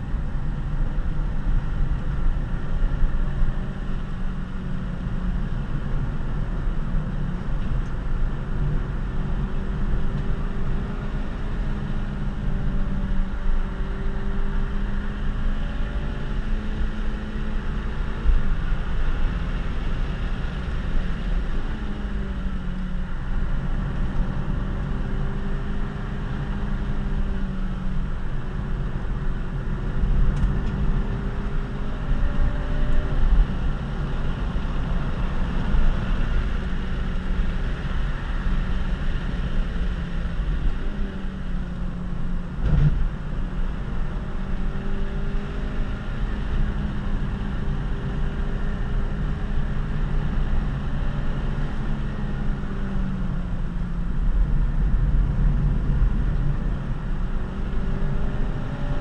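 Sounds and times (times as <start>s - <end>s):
car engine running under load: 0.0s - 59.0s
tyre and road rumble: 27.4s - 59.0s.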